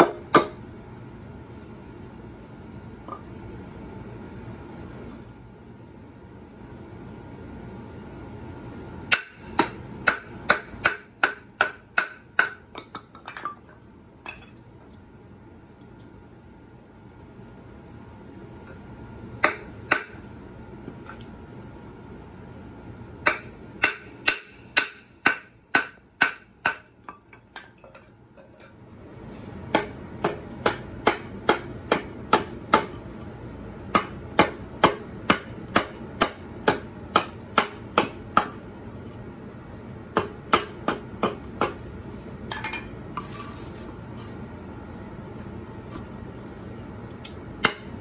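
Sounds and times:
axe chopping wood: 29.7s - 33.0s, 33.9s - 38.6s, 40.2s - 41.8s, 47.6s - 47.9s.

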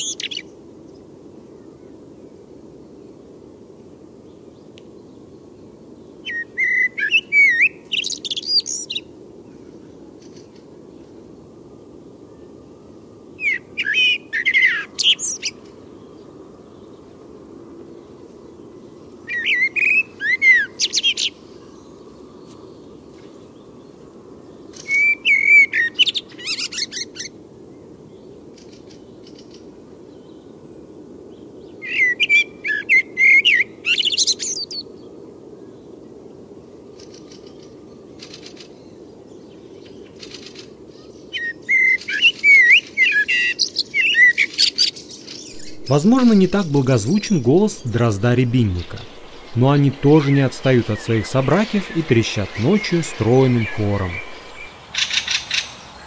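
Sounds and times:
blackbird singing: 45.4s - 55.7s.

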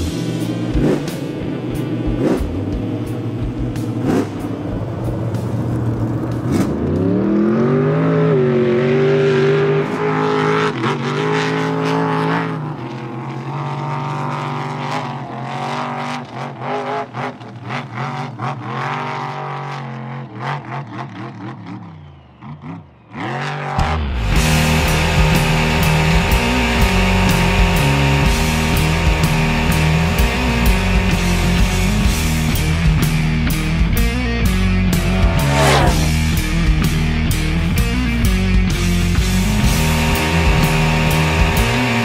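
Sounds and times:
race car engine revving: 0.0s - 42.0s.

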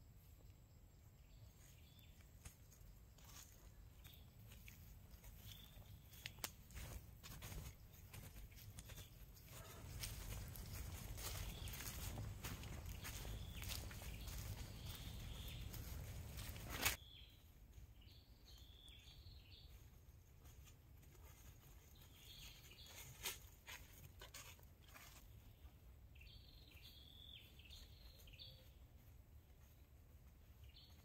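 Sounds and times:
bird chirping: 10.9s - 19.8s, 25.4s - 28.8s.

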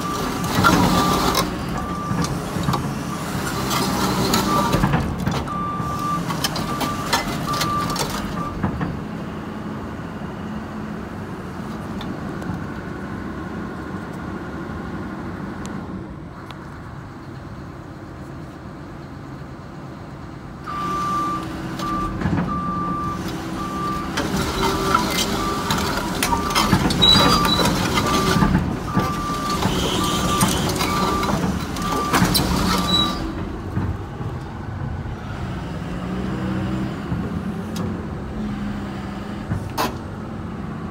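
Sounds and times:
diesel engine running: 0.0s - 40.9s
steel tracks clattering on concrete: 24.1s - 34.6s.

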